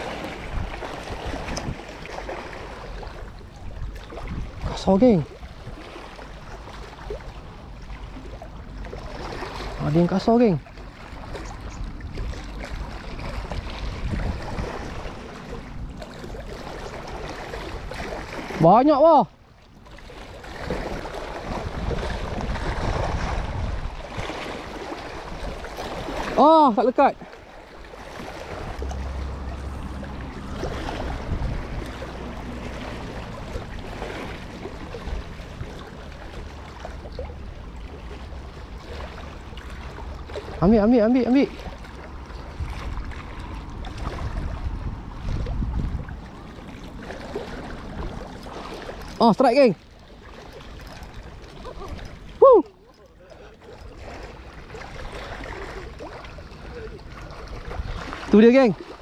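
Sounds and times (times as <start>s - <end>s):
wind buffeting microphone: 0.0s - 2.3s, 2.9s - 5.9s, 11.2s - 18.6s, 20.5s - 26.4s, 28.0s - 38.3s, 41.4s - 49.4s, 53.8s - 58.6s
small waves lapping on rocks: 0.0s - 59.0s
low steady rumble: 27.5s - 40.9s.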